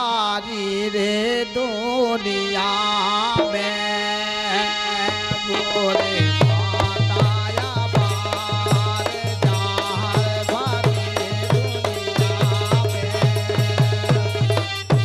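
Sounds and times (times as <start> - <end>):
harmonium drone: 0.0 - 15.0
man singing: 0.0 - 15.0.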